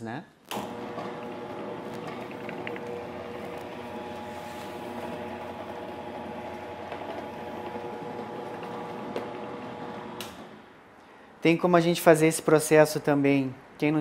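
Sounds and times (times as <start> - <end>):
dough sheeter motor humming: 0.6 - 10.4.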